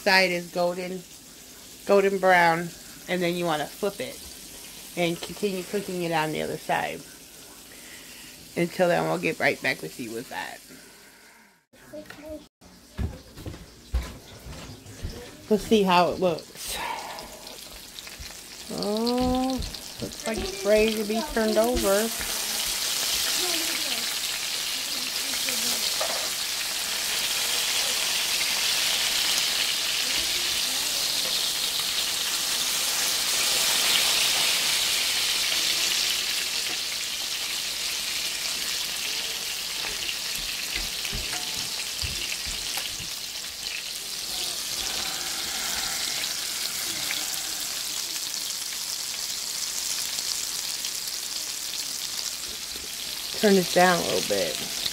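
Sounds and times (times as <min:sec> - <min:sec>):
steaks sizzling in grease: 0:00.0 - 0:10.8, 0:15.7 - 0:54.9.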